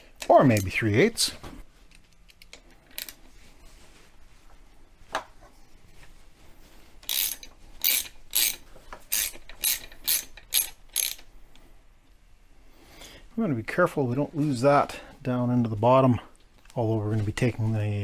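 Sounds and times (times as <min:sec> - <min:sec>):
socket ratchet clicking: 0:07.0 - 0:11.3.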